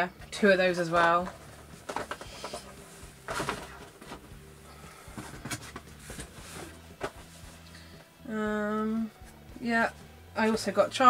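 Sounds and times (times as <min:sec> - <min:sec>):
cardboard packaging rustling: 0:01.0 - 0:07.6.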